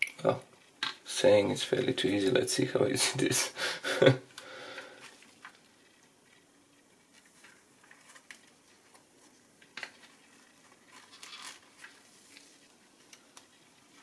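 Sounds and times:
plastic film crinkling and rustling: 0:05.0 - 0:14.0.

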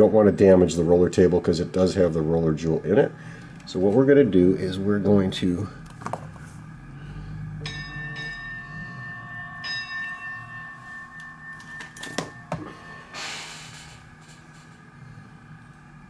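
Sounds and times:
bell-like metallic ring: 0:07.4 - 0:14.2.

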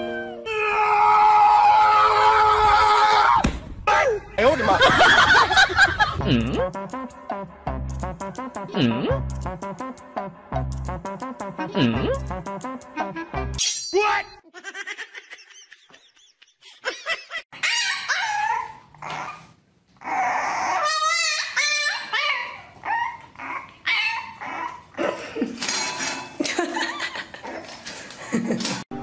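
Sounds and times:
puppy whining and yipping: 0:17.6 - 0:25.0.

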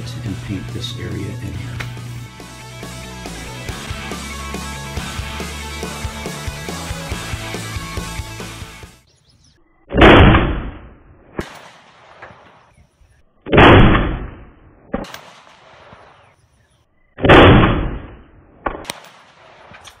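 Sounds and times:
rifle shots: 0:11.4 - 0:12.7, 0:13.5 - 0:16.4, 0:17.2 - 0:20.0.

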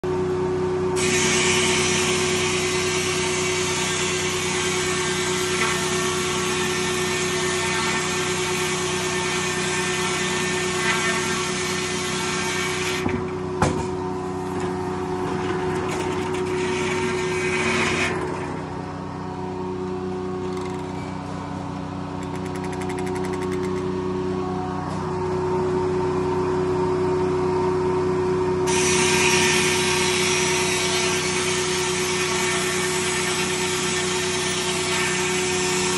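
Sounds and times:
sawmill humming: 0:00.1 - 0:35.9
saw blade hissing through wood: 0:01.0 - 0:13.0, 0:28.7 - 0:35.9.

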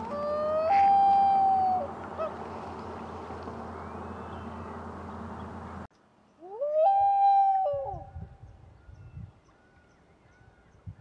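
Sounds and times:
loon wailing call: 0:00.0 - 0:02.5, 0:06.4 - 0:08.2.

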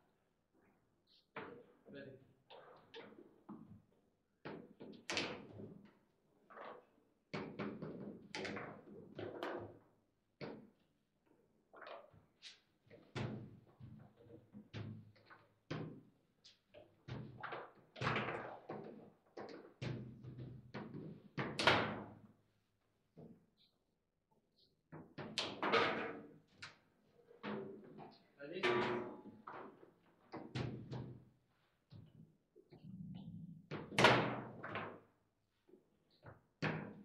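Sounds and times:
table football knocks and clacks: 0:07.3 - 0:09.8, 0:12.9 - 0:22.2, 0:24.9 - 0:26.8, 0:27.4 - 0:32.1, 0:36.2 - 0:37.0.

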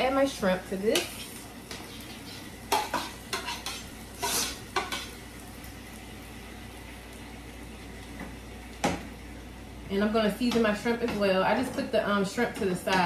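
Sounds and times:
shrimp sizzling in a skillet: 0:00.1 - 0:09.3
fork scraping a metal pan: 0:01.9 - 0:05.1.

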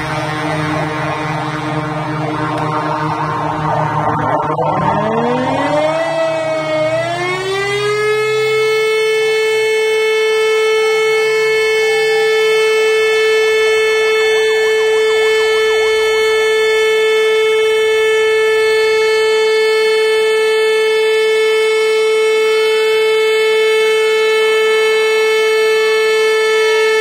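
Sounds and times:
faint rising and falling tones: 0:00.0 - 0:19.7
faint wavering siren tones: 0:00.0 - 0:27.0
siren steady tone: 0:00.0 - 0:27.0.

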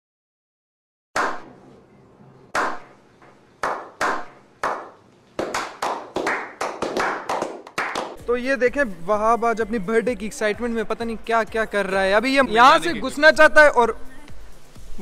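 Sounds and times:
group slow clapping: 0:02.6 - 0:02.9, 0:03.6 - 0:08.2.

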